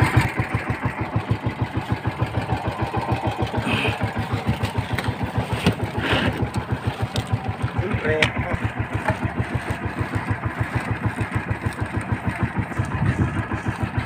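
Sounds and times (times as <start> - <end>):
boat engine idling: 0.0 - 14.0.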